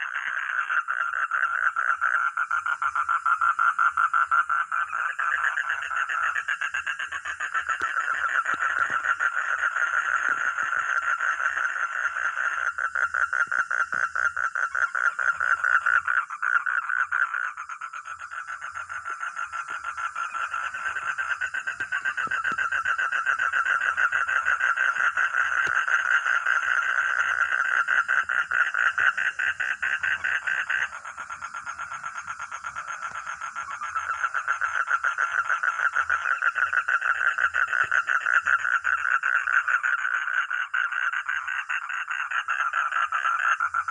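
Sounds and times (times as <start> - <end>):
frogs croaking in chorus: 0.0 - 43.9.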